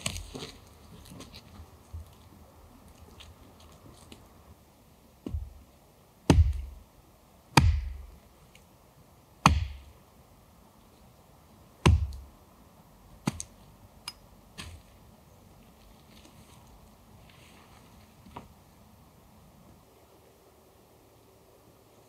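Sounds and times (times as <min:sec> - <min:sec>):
heavy blows on wood: 0:05.2 - 0:05.6, 0:06.3 - 0:06.8, 0:07.6 - 0:08.2, 0:09.4 - 0:09.9, 0:11.8 - 0:12.3.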